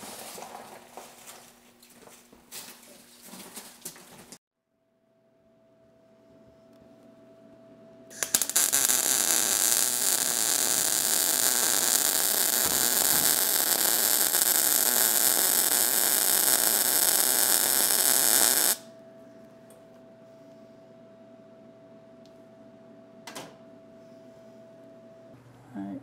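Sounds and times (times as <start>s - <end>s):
arc welding crackling hiss: 8.1s - 18.9s.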